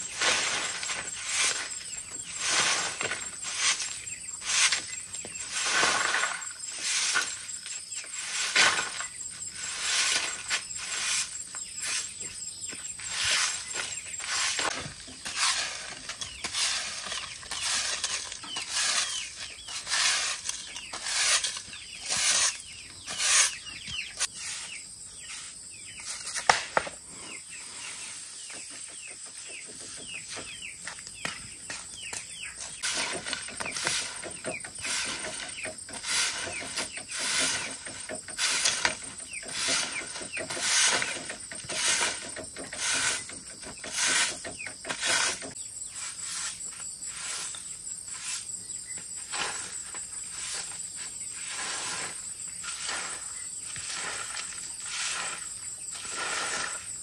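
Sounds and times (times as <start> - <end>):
chicks peeping: 11.6 - 26.1.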